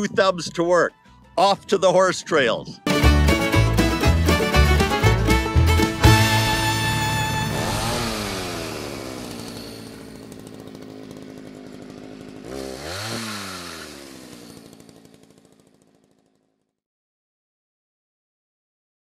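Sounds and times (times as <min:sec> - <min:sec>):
chainsaw engine revving and idling: 0:02.9 - 0:16.7.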